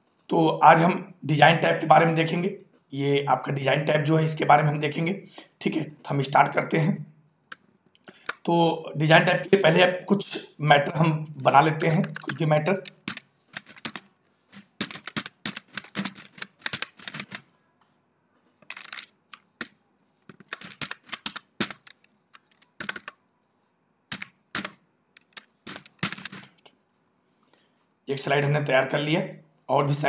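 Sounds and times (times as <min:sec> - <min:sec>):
computer keyboard typing: 0:00.0 - 0:00.3, 0:01.5 - 0:02.8, 0:05.8 - 0:06.8, 0:09.1 - 0:09.9, 0:11.8 - 0:17.5, 0:18.4 - 0:23.2, 0:24.1 - 0:26.6.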